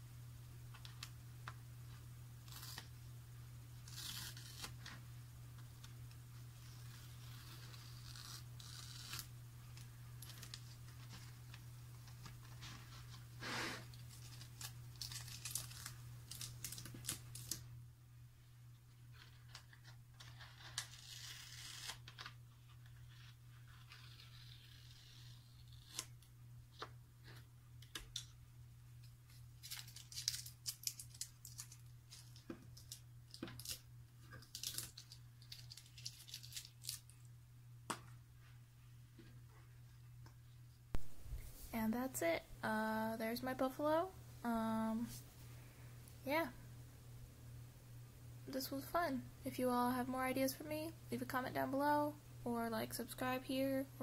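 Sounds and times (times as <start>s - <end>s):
steady low hum: 0.0s - 54.0s
tape tearing off paper: 2.4s - 2.9s, 3.8s - 5.0s, 6.6s - 9.3s, 12.2s - 17.6s, 19.3s - 22.4s, 23.0s - 26.2s, 29.6s - 33.8s, 34.4s - 37.1s.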